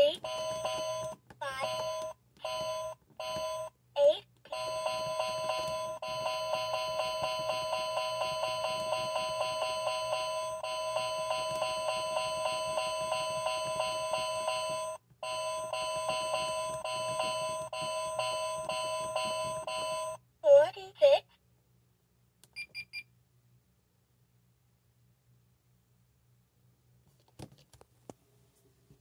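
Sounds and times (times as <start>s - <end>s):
alarm clock beeping rapidly: 0.2s - 3.7s, 4.5s - 20.2s.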